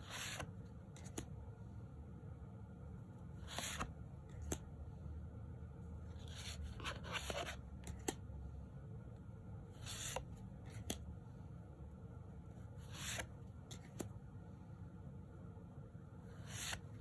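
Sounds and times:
cards sliding swishes: 0:00.0 - 0:01.4, 0:03.3 - 0:04.7, 0:06.2 - 0:08.2, 0:09.7 - 0:11.0, 0:12.7 - 0:14.2, 0:16.3 - 0:17.0.

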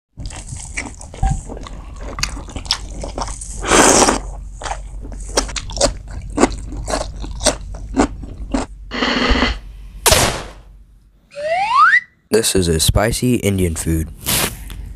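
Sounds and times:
person chewing food: 0:00.2 - 0:09.5.

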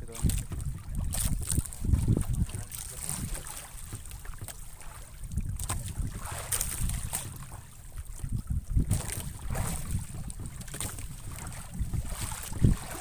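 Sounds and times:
water sloshing against boat: 0:00.0 - 0:13.0
wind buffeting microphone: 0:00.0 - 0:13.0.

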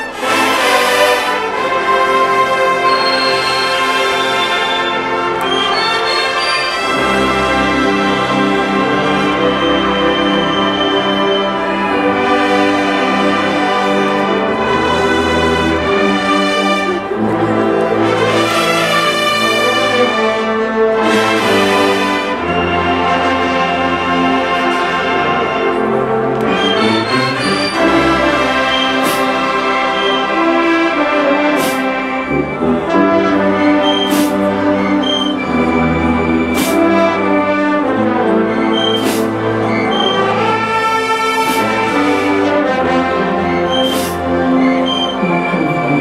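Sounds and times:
brass band playing slow chords: 0:00.0 - 0:46.0.

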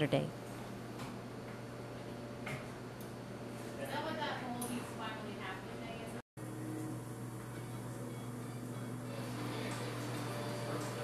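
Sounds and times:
steady low hum: 0:05.0 - 0:11.0.

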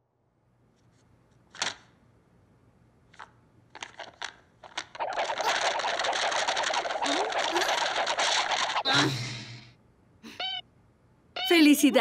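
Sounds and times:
loud fast clatter: 0:03.8 - 0:08.9.

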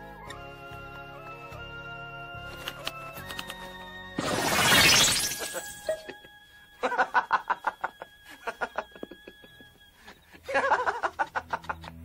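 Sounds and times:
rapid pulsing laughter: 0:10.3 - 0:12.0.

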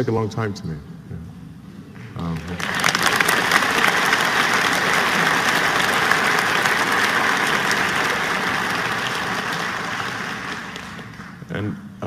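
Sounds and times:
large audience applauding: 0:02.3 - 0:11.5.

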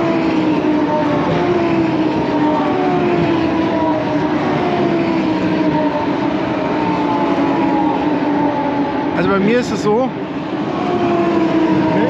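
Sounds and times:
race car engines revving: 0:00.0 - 0:12.0
track noise: 0:00.0 - 0:12.0.

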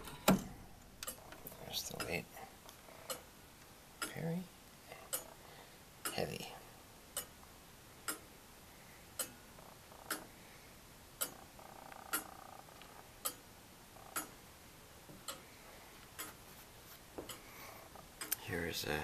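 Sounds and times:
clock ticking: 0:00.0 - 0:02.4, 0:03.0 - 0:05.4, 0:06.0 - 0:06.5, 0:07.1 - 0:08.3, 0:09.1 - 0:10.4, 0:11.2 - 0:14.5, 0:15.1 - 0:15.5, 0:16.1 - 0:16.4, 0:17.2 - 0:19.0.

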